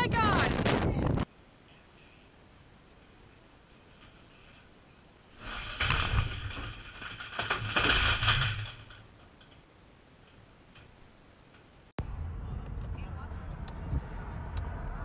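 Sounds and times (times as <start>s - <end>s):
desk and monitor crashing: 5.4s - 9.0s.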